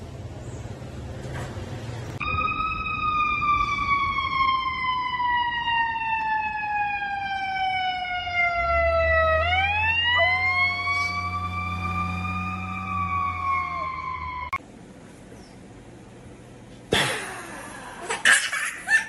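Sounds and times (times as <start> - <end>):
emergency siren wailing: 2.2 - 14.6.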